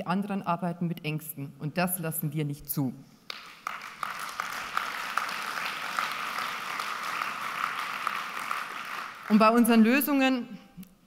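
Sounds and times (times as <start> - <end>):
audience applauding: 3.3 - 9.8.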